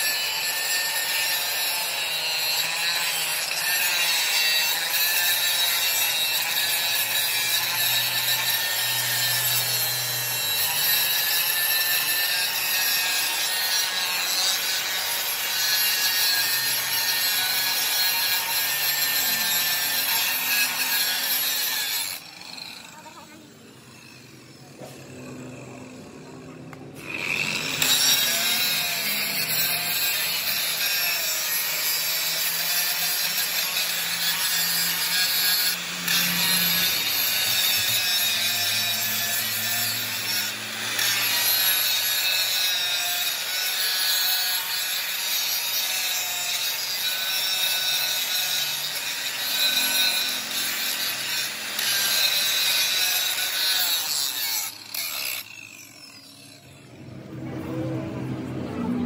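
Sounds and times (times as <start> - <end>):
angle grinder cutting steel: 0.0 - 59.0.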